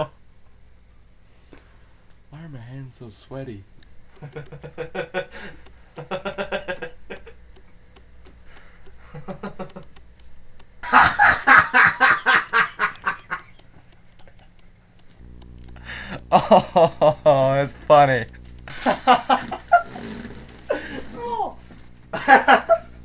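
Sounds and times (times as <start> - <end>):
person cackling: 4.1 - 7.4, 8.4 - 10.0, 10.8 - 14.7, 15.8 - 23.0.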